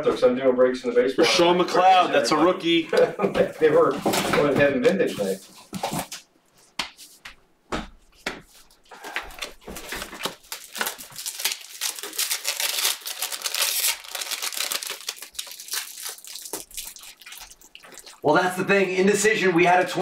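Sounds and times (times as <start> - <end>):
card pack wrappers crinkling: 8.9 - 18.2.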